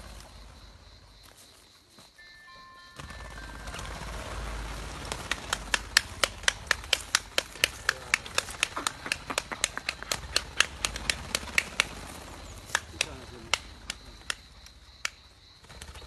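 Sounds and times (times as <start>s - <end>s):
sharp clicks: 5.0s - 15.9s.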